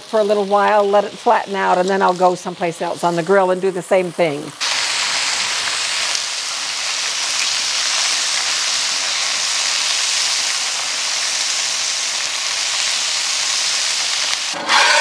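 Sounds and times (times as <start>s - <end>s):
bacon sizzling on griddle: 0.0s - 15.0s.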